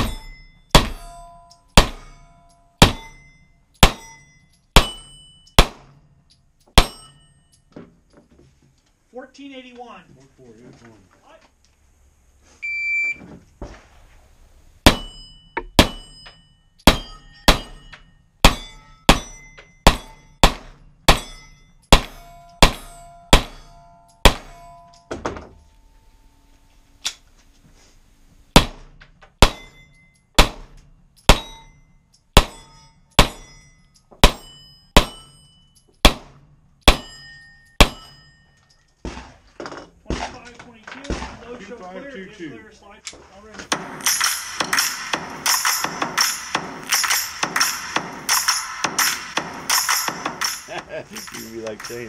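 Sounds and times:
steel targets ringing: 0.0s - 7.7s, 14.8s - 26.3s, 29.4s - 38.9s, 43.7s - 52.0s
rapid pistol shots: 1.8s - 2.0s, 4.8s - 5.9s, 15.8s - 16.2s, 18.4s - 21.3s, 21.9s - 23.6s, 24.2s - 24.5s, 28.6s - 29.7s, 30.4s - 31.5s, 36.0s - 37.1s, 43.7s - 50.9s.

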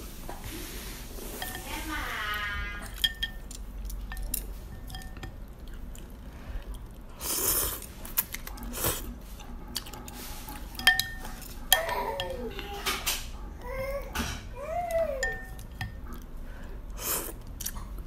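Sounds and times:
chewing: 2.8s - 12.7s, 14.8s - 18.0s.

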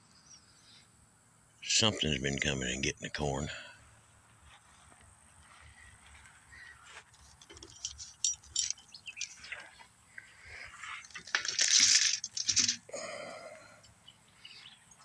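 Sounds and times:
footsteps through short grass: 4.1s - 8.2s
handling clicks and rustles: 4.9s - 12.9s.

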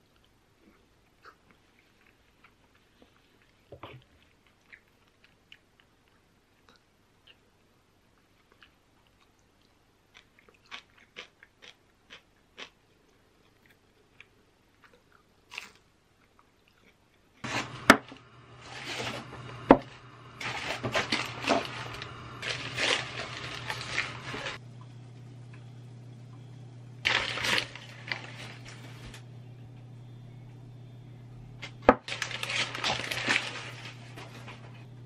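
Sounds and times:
crunchy chewing: 8.1s - 17.8s, 20.4s - 24.6s
low steady hum: 17.3s - 35.0s
newspaper crumpling and rustling: 17.4s - 24.6s, 27.0s - 29.2s, 31.9s - 34.7s.

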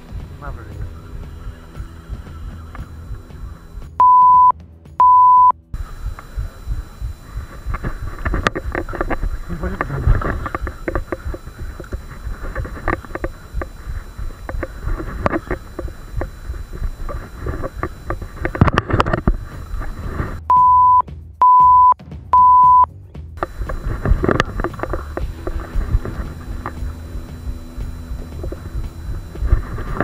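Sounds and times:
loud electronic beeps: 0.5s - 30.0s
scattered knocks and clicks: 5.8s - 20.4s, 23.4s - 30.0s.

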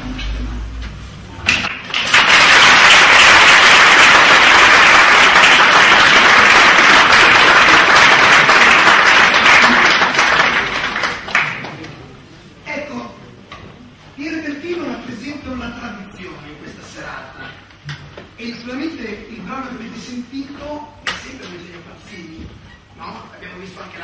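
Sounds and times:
audience applauding: 1.5s - 11.9s.

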